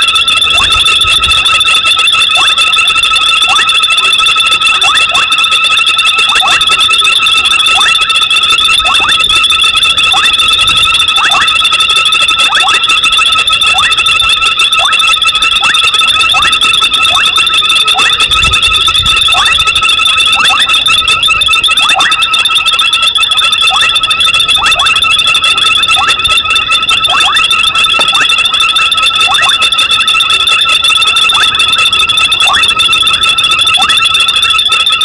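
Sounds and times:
frogs trilling: 0.0s - 1.5s, 2.1s - 3.7s, 6.2s - 8.1s, 8.7s - 30.4s, 31.2s - 34.0s.

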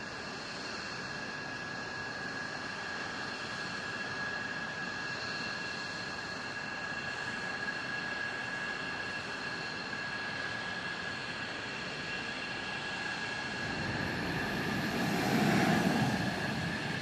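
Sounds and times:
jet turbine whine: 0.1s - 17.0s
rush of air: 12.9s - 17.0s.

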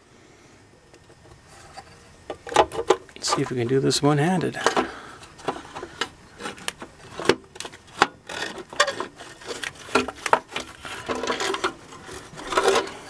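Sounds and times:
metal cover clicking and scraping: 4.6s - 13.0s.

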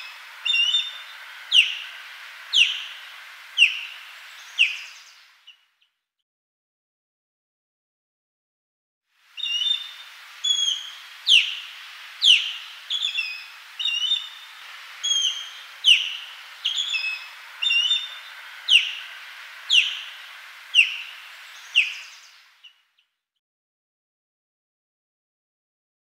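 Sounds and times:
osprey calling: 0.0s - 5.6s, 9.3s - 22.8s
faint steady hiss: 0.0s - 5.8s, 9.1s - 23.0s.

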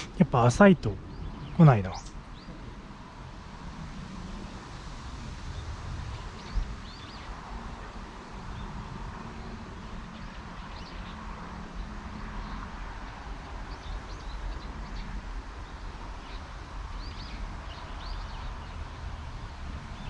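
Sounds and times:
small birds chirping: 0.0s - 2.8s, 11.8s - 20.0s
wind rumble on microphone: 0.0s - 20.0s.

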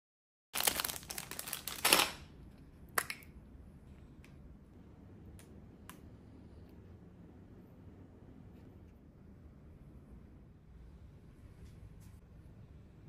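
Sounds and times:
paint tube crinkling: 0.6s - 2.3s.

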